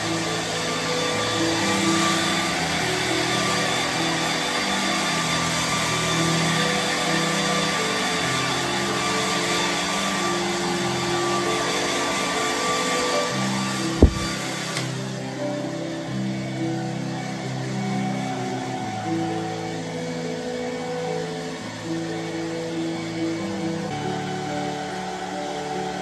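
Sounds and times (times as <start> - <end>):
hair dryer blowing: 0.0 - 26.0.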